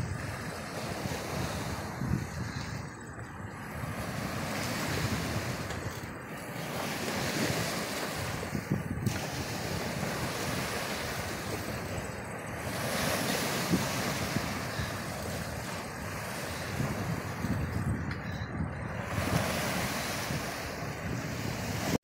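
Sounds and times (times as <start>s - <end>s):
wind buffeting microphone: 0.0s - 22.0s
surf breaking on rocks: 3.8s - 17.9s.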